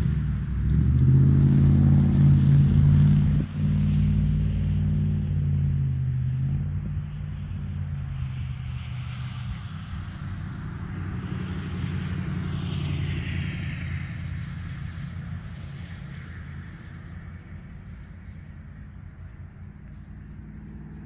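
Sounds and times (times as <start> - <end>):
steady low rumble: 0.0 - 11.3, 12.1 - 21.0.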